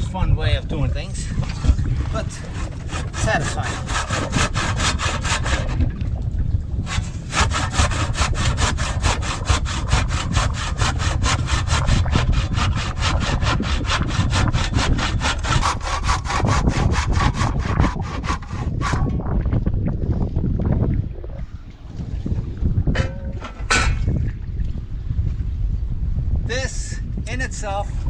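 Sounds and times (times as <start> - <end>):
handsaw cutting wood: 2.2 - 5.9, 6.9 - 19.1.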